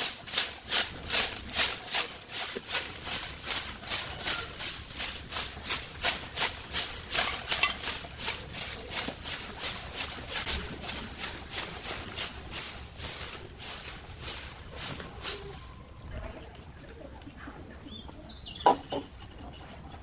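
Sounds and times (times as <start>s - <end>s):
broom sweeping dirt and leaves: 0.0s - 16.0s.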